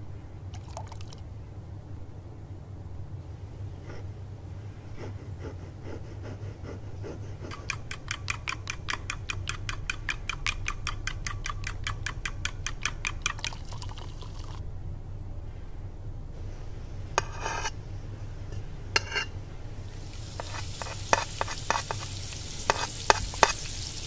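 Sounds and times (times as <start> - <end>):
low steady hum: 0.0 - 24.0
whisk clinking against glass bowl: 7.5 - 14.5, 20.3 - 23.7.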